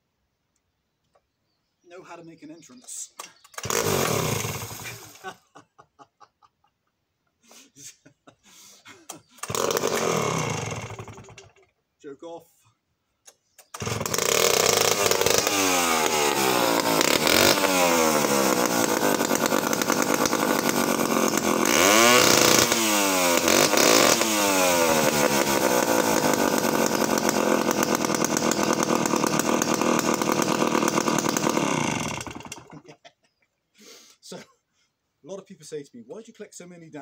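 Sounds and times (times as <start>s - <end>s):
two-stroke chainsaw revving and idling: 3.4s - 5.3s, 9.4s - 11.6s, 13.7s - 32.9s.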